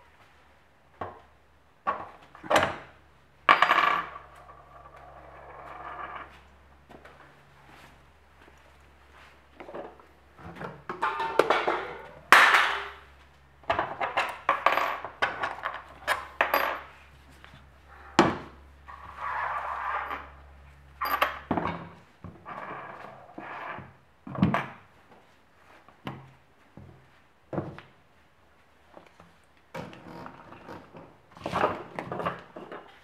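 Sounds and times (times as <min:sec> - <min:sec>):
tools clattering on workbench: 0:09.8 - 0:13.0.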